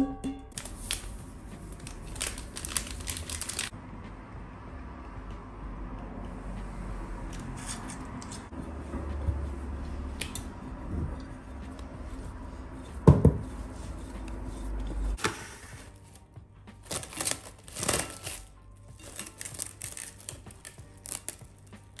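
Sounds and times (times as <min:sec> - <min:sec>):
cling film rustling: 0:00.5 - 0:03.7, 0:13.5 - 0:22.0.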